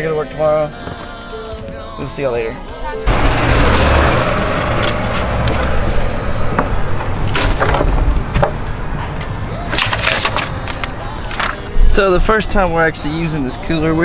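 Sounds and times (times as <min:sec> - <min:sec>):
paper crinkling: 0:09.7 - 0:11.9.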